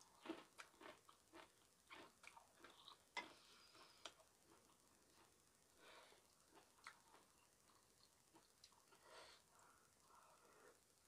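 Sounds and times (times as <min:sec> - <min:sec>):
person chewing: 0:00.0 - 0:05.3, 0:06.1 - 0:09.1.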